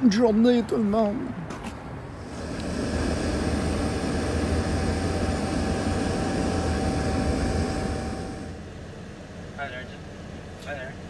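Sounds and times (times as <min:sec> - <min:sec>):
engine and road rumble: 0:00.0 - 0:11.0
thin even whine: 0:02.2 - 0:08.7.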